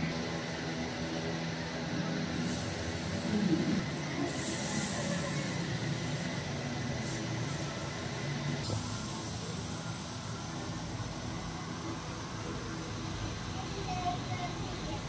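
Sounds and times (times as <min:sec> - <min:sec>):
chicken sizzling on a grill: 0:04.3 - 0:07.7, 0:08.7 - 0:11.6.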